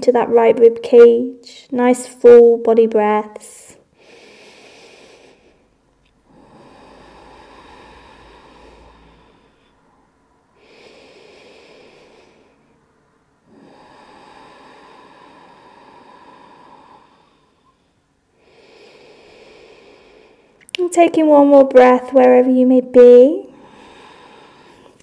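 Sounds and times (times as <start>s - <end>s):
woman breathing deeply: 3.8s - 20.6s, 23.5s - 25.0s.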